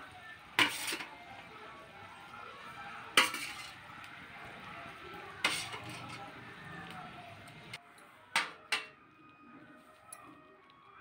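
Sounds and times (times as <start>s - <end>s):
curry simmering: 0.0s - 11.0s
metal utensil clinking on pot rim: 0.6s - 1.1s, 3.1s - 3.8s, 5.4s - 6.3s.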